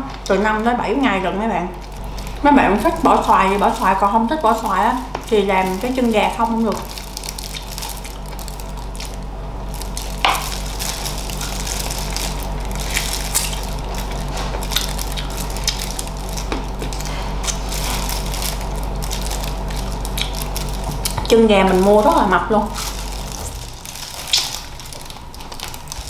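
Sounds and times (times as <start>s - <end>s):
low hum: 0.0s - 26.0s
crunchy chewing mouth sounds: 6.8s - 9.2s, 9.8s - 21.3s.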